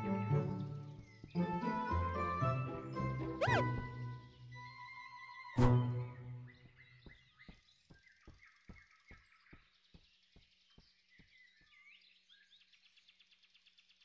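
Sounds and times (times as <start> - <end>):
bird chirps: 3.0 - 14.0.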